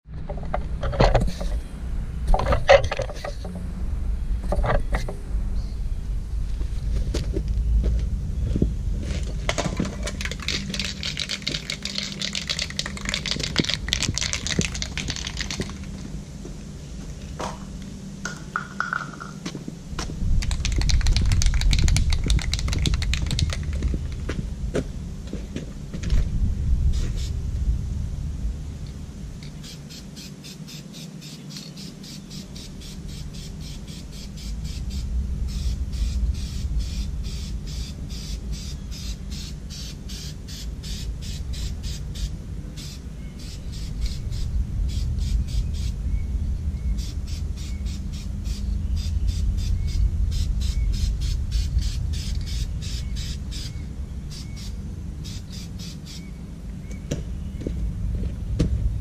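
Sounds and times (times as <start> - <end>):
low rumble: 0.1 - 29.4, 34.0 - 39.7, 41.0 - 55.3
bird calling rapid notes: 10.0 - 15.9, 29.5 - 46.1, 46.8 - 56.4.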